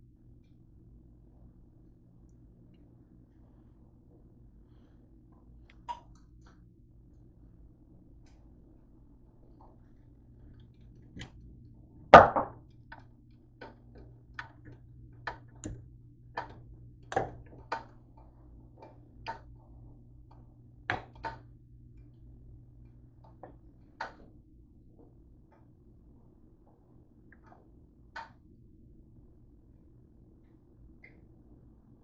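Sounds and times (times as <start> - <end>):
items knocking on counter: 12.2 - 12.6.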